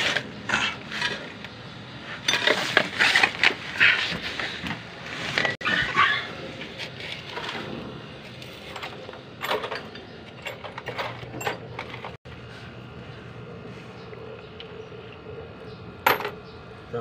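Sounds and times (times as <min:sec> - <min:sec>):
metal tools clicking on engine parts: 0:08.2 - 0:12.2.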